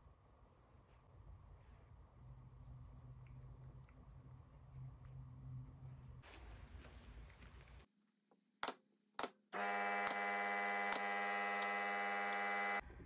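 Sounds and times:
small power tool motor whine: 9.6s - 12.8s.

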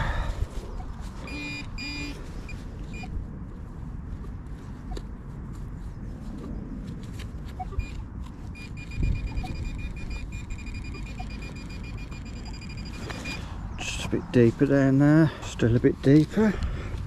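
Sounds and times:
wind rumble on microphone: 0.0s - 10.8s
high alert tone: 1.2s - 2.2s.

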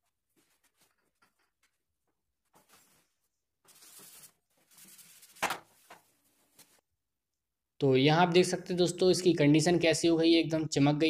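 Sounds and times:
cloth rubbing on metal: 2.4s - 6.8s.

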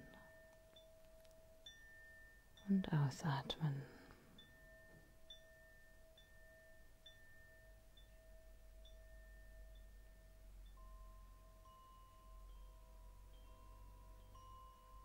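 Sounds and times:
soft sustained tones: 0.0s - 15.0s
high chime-like ping: 4.3s - 15.0s.

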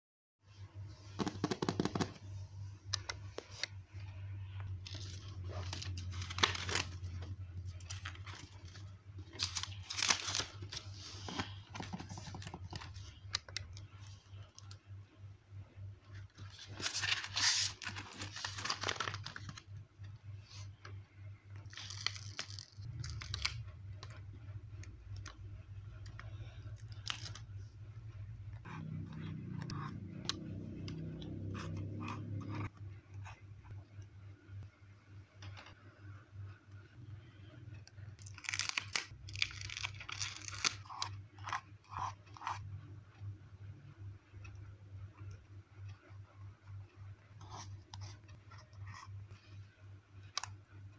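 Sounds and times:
low steady hum: 0.4s - 50.9s
plastic sticker sheet crinkling: 3.0s - 14.8s, 16.2s - 19.6s, 21.6s - 25.4s, 26.0s - 27.7s, 37.9s - 42.6s
paper sticker crackling: 16.4s - 19.6s.

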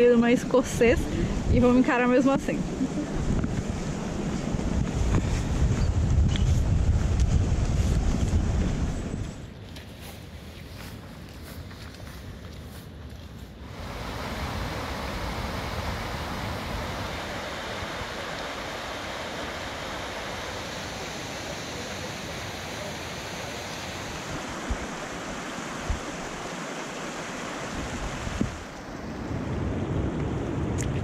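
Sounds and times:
stream rushing water: 13.6s - 30.8s.

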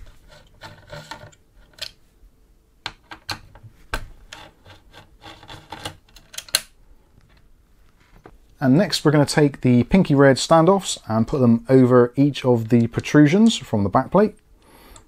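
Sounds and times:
screwdriver clicking and scraping: 0.0s - 2.0s, 4.3s - 6.6s.

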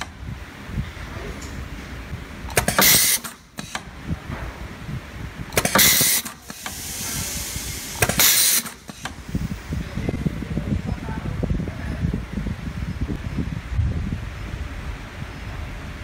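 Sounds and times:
crimp machine clack: 2.5s - 3.9s, 5.6s - 7.0s, 7.9s - 9.2s
pneumatic air hiss: 2.5s - 3.9s, 5.5s - 9.5s.

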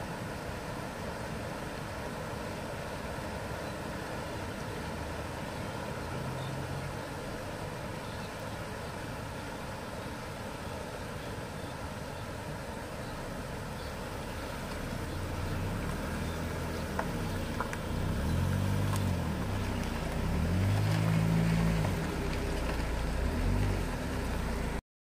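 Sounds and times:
water rushing across ford: 0.0s - 24.8s
van engine passing: 5.0s - 8.0s, 13.2s - 24.8s.

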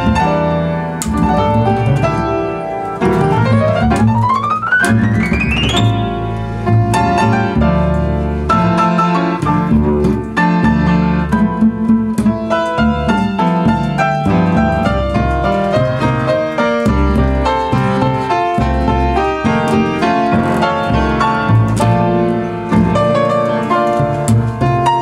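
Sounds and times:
piano notes: 0.0s - 25.0s
plucked double bass: 0.0s - 25.0s.

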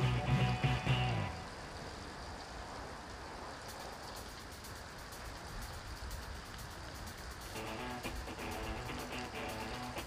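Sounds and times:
background music: 0.0s - 1.4s, 7.5s - 10.0s
steady rushing noise: 0.0s - 10.0s.

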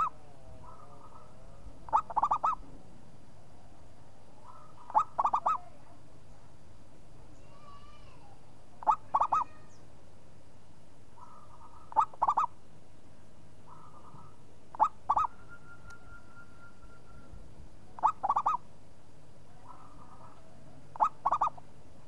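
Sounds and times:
dove cooing: 0.0s - 2.7s, 4.4s - 5.7s, 8.8s - 9.6s, 11.2s - 12.5s, 13.7s - 15.4s, 18.0s - 18.6s, 19.6s - 21.6s.

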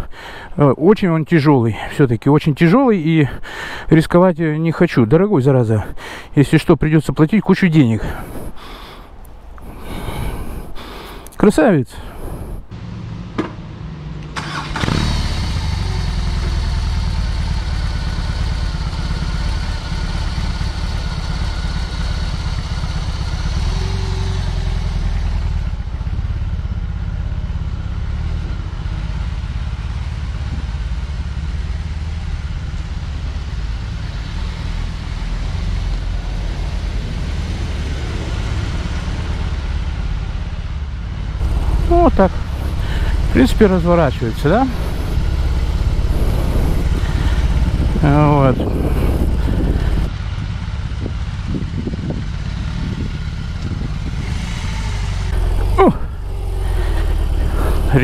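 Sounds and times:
motorcycle engine running: 12.7s - 58.0s.

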